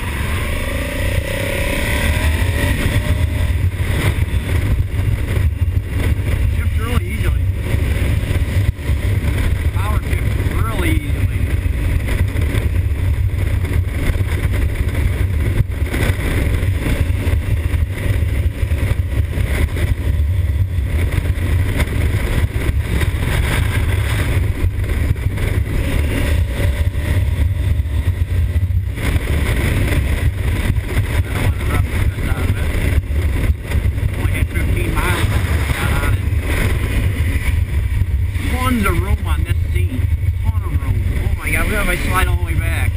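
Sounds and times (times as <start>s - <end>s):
motorcycle engine cruising: 0.0s - 42.9s
wind rush on microphone: 0.0s - 42.9s.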